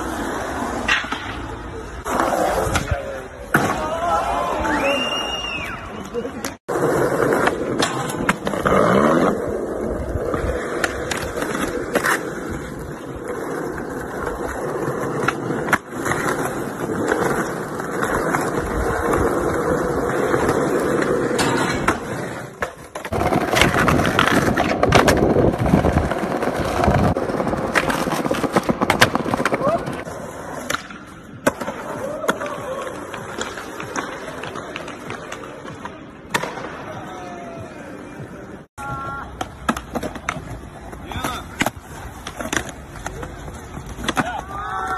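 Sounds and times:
skateboard wheels rolling: 0:00.0 - 0:44.9
skateboard pops and clacks: 0:00.8 - 0:01.5, 0:07.4 - 0:08.6, 0:21.3 - 0:30.0, 0:30.6 - 0:36.8, 0:39.3 - 0:44.5.

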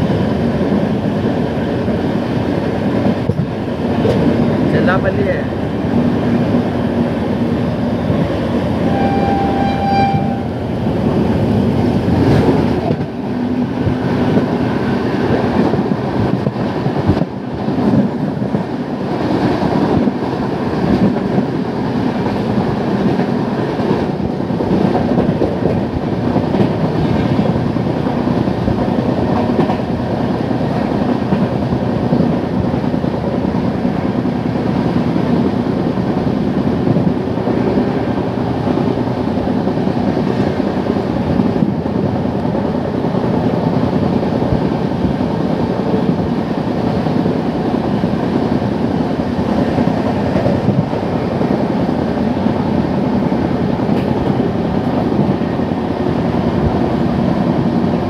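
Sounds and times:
train rushing past: 0:00.0 - 0:58.0
train horn blast: 0:08.8 - 0:10.6.

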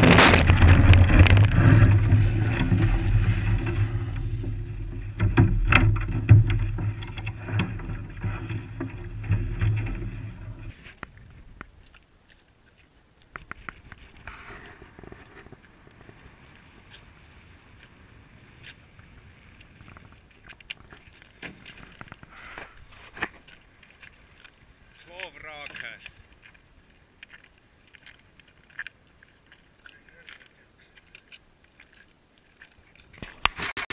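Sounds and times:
sharp clicks and knocks: 0:00.0 - 0:10.1
wind rumble on microphone: 0:00.0 - 0:11.9
footsteps crunching on ice: 0:19.6 - 0:33.6.

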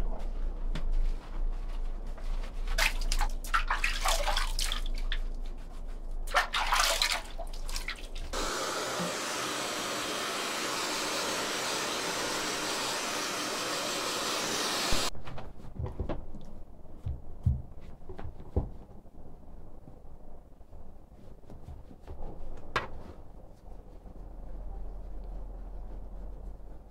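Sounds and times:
hands splashing water in a basin: 0:02.7 - 0:05.4, 0:06.2 - 0:08.4
hair dryer blowing: 0:08.3 - 0:15.1.

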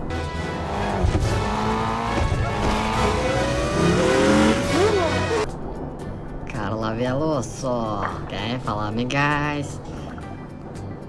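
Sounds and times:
music: 0:00.0 - 0:11.0
race car engines running: 0:00.1 - 0:05.5.

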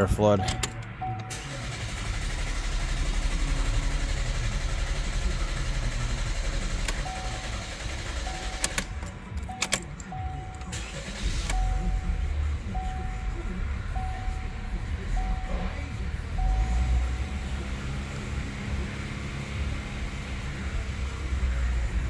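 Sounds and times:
dashboard chime beeping: 0:00.3 - 0:01.4, 0:07.0 - 0:10.8, 0:14.0 - 0:17.4
car starter cranking engine: 0:00.3 - 0:21.8.

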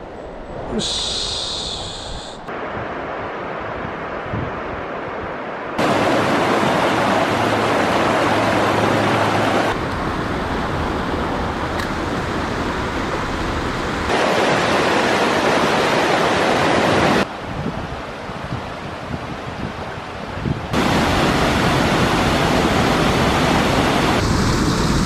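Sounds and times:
stream rushing over rocks: 0:05.8 - 0:17.3, 0:20.8 - 0:24.3.

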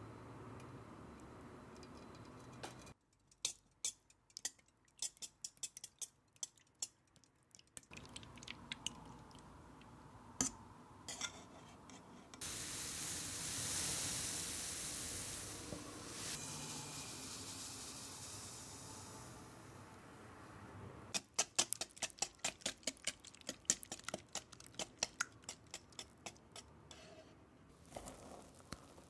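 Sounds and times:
sugar pouring into cup: 0:16.1 - 0:19.3, 0:27.8 - 0:29.0.

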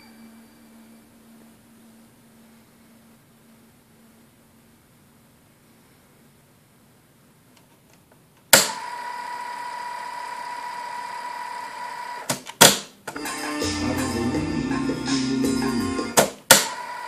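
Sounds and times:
tape hiss with high tone: 0:00.0 - 0:07.1, 0:13.1 - 0:17.0
recorded music from tape: 0:12.6 - 0:17.0.

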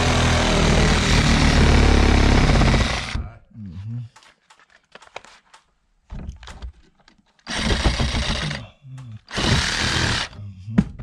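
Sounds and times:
reciprocating saw cutting wood: 0:00.0 - 0:03.2, 0:09.3 - 0:10.3.

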